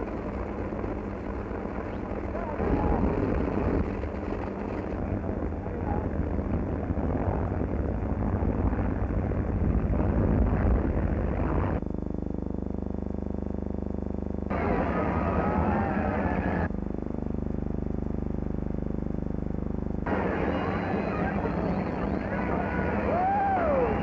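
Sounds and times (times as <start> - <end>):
propeller plane engine drone: 0.0 - 24.0.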